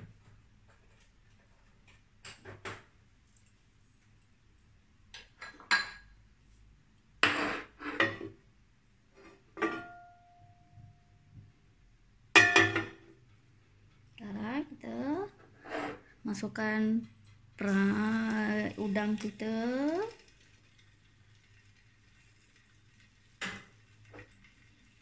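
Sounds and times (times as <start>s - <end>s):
frying pan clinking and knocking: 12.3s - 13.1s.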